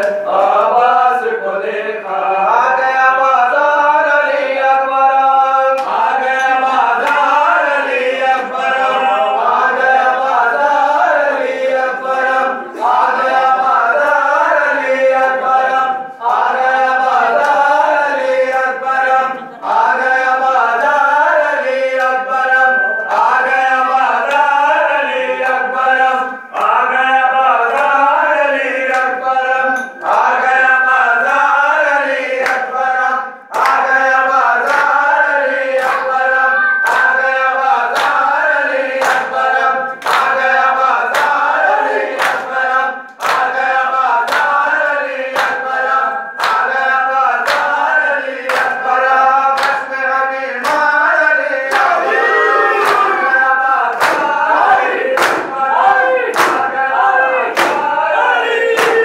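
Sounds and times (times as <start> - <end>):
men chanting in unison: 0.0 - 59.0
hands slapping chests: 55.2 - 55.5, 56.3 - 56.7, 57.5 - 57.9.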